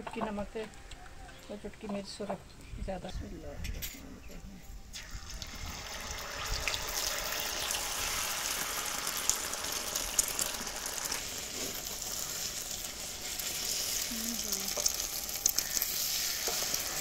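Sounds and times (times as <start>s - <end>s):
egg sizzling on a griddle: 4.9s - 17.0s
oil popping and crackling: 4.9s - 17.0s.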